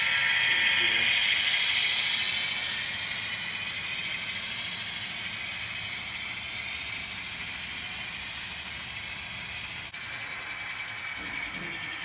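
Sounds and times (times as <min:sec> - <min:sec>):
model train wheels rattling: 0:00.0 - 0:12.0.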